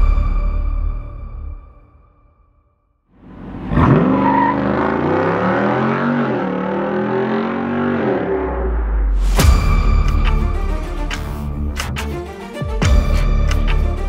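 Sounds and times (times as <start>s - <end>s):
car engine accelerating: 3.2s - 9.2s
loud music hit: 8.6s - 14.0s.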